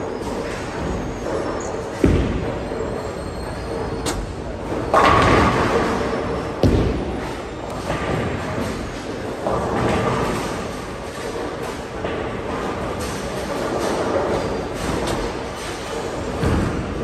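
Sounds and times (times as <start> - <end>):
steady rumble of rolling balls: 0.0 - 17.0
bowling balls thudding: 0.2 - 17.0
bowling pins crashing: 1.9 - 10.9.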